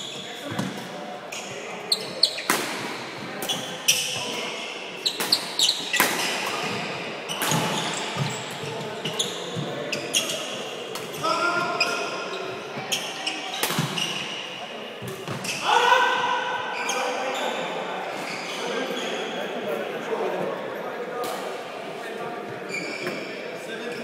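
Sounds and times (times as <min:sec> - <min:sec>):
shoes squeaking on wooden floor: 0:05.0 - 0:10.5.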